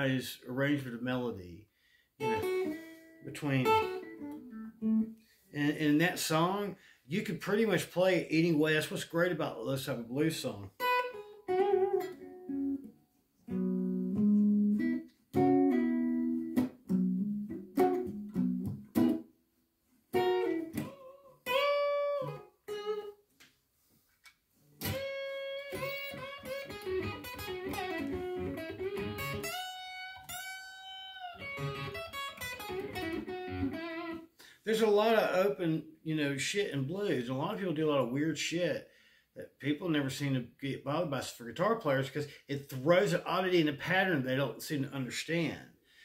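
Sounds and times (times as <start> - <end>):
blues electric guitar solo: 2.2 - 5.2, 10.7 - 19.2, 20.1 - 23.2, 24.8 - 34.3.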